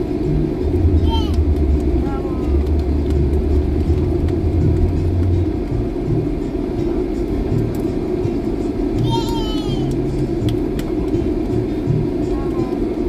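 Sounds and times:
deep hum: 0.0 - 12.8
airliner cabin noise: 0.0 - 13.0.

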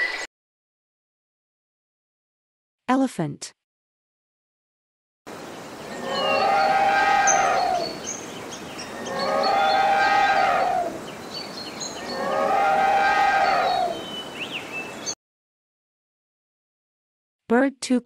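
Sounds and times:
elephant trumpeting: 5.9 - 8.0, 8.9 - 11.1, 12.0 - 14.1.

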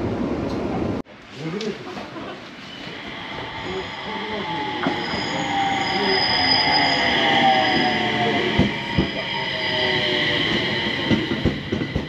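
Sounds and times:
wheels hissing on rail: 2.4 - 12.0
electric train motor whine: 2.8 - 12.0.

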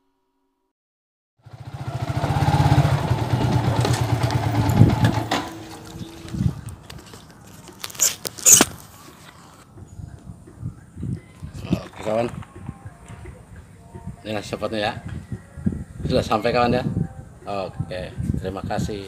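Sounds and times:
motorcycle engine running: 1.4 - 7.2.

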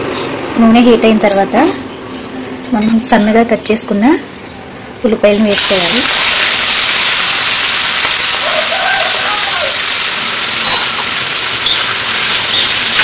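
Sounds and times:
onions sizzling in hot oil: 5.5 - 13.0.

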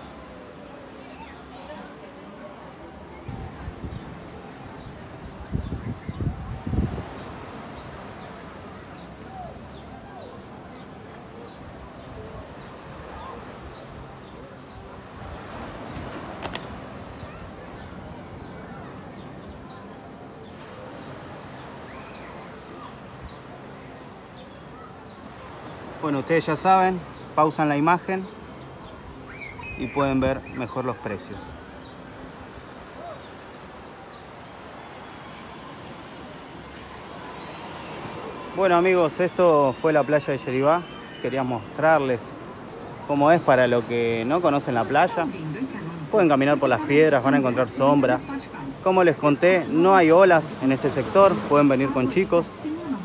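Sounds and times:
beach background hiss: 0.0 - 53.0
distant voices: 0.0 - 53.0
faint distant sounds: 0.0 - 53.0
surf: 0.0 - 53.0
wind: 0.0 - 53.0
high bird chirps: 40.4 - 41.8.

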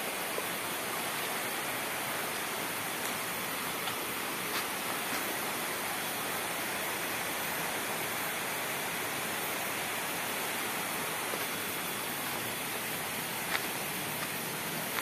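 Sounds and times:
river water flowing: 0.0 - 15.0.

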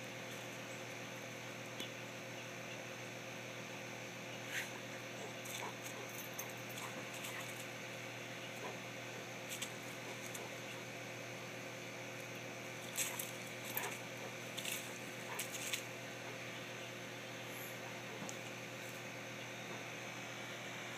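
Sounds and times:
faint steady hum: 0.0 - 20.9
leaves rustling: 12.6 - 16.0.

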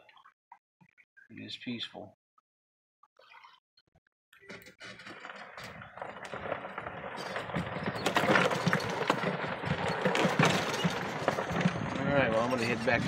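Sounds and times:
utility vehicle driving on dirt: 4.4 - 13.0
knocks and rattles: 4.5 - 13.0.

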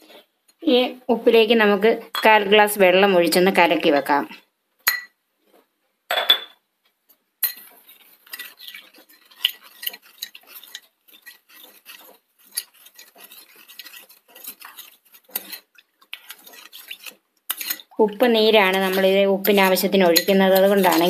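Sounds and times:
metal spoon clinking in glass bowl: 4.9 - 5.2, 18.9 - 21.0.

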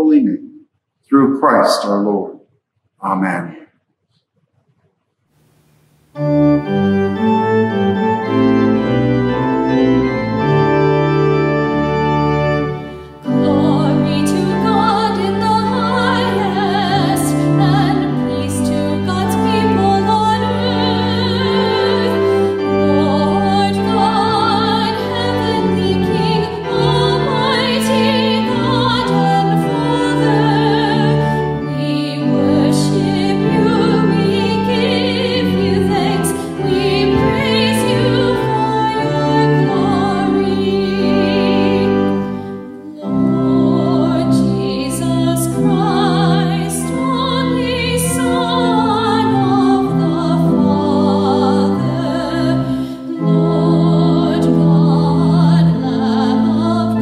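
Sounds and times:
church organ chords: 1.1 - 2.3, 6.1 - 57.0
person singing: 1.1 - 2.3, 13.2 - 57.0.

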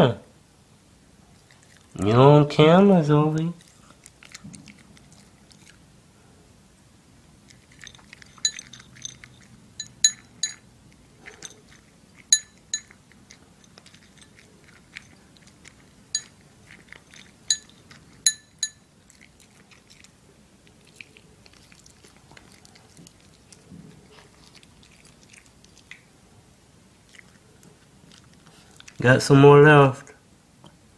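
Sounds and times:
dog crunching dry kibble: 1.4 - 2.1, 3.2 - 5.9, 7.4 - 26.2, 27.0 - 29.2
ringing clinks against bowl: 7.8 - 10.7, 12.3 - 13.0, 16.2 - 16.4, 17.5 - 18.9.

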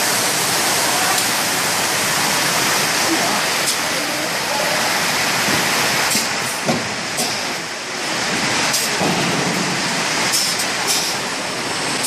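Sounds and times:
pneumatic air bursts: 10.3 - 11.2.

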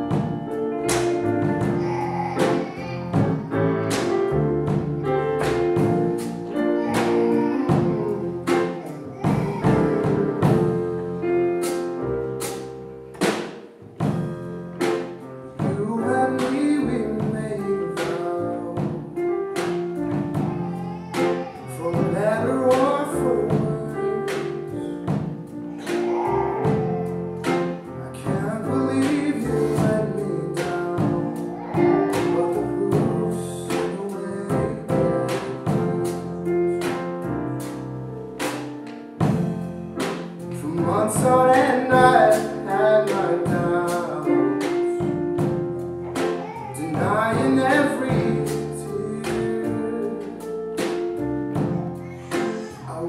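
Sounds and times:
drum kit beat: 0.0 - 53.0
live band playing: 0.0 - 53.0.

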